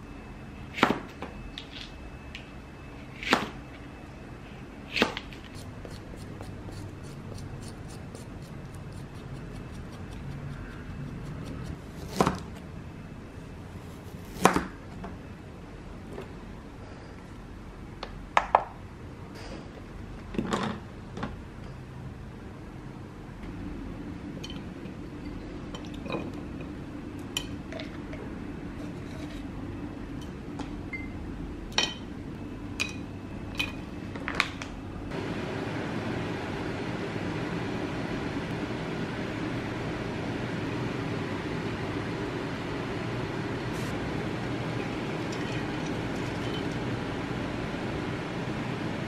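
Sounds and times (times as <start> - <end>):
dishes and utensils clinking: 45.2 - 46.8.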